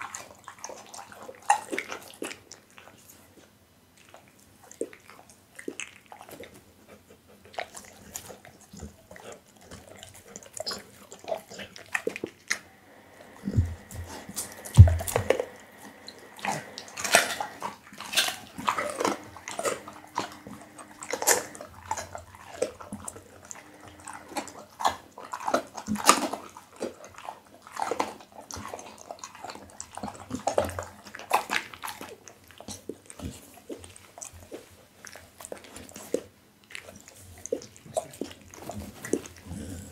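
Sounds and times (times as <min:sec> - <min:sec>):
dog chewing meat: 0:00.0 - 0:39.9
heavy thumps: 0:13.4 - 0:17.4.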